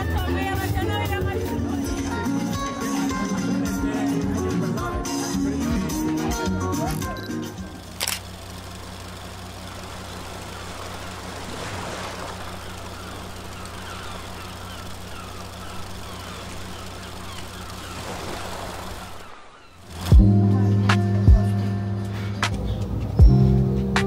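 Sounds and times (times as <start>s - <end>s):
distant traffic hum: 6.9s - 24.0s.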